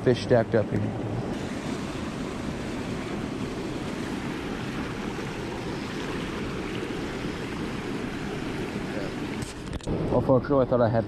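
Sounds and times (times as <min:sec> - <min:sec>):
stream flowing over rocks: 0:01.3 - 0:10.0.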